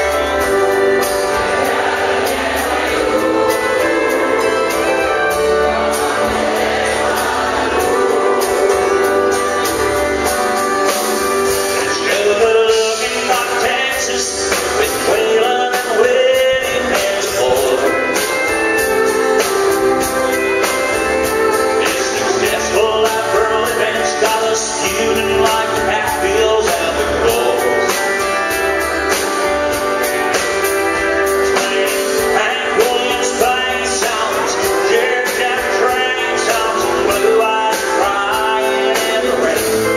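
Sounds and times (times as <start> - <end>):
man singing: 0.0 - 29.2, 30.9 - 39.9
pedal steel guitar: 0.0 - 39.9
steady drum beat: 0.0 - 39.9
strummed acoustic guitar: 0.0 - 39.9.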